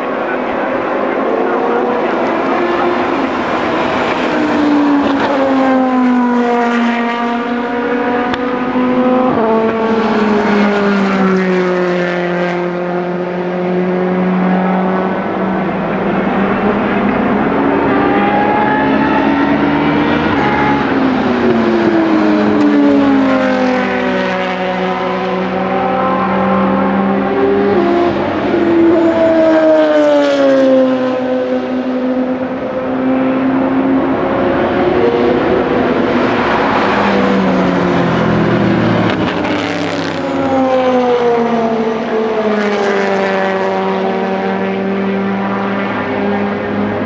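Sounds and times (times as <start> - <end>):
race cars passing at high revs: 0.0 - 47.0.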